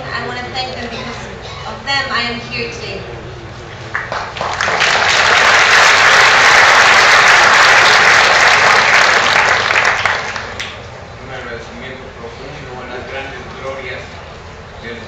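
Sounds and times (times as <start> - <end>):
audience applauding: 3.9 - 10.8.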